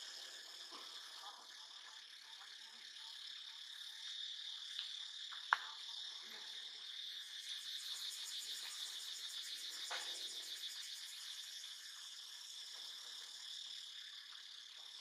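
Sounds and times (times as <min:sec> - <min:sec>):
insects trilling: 0:00.0 - 0:15.0
faint ticks: 0:04.0 - 0:05.9.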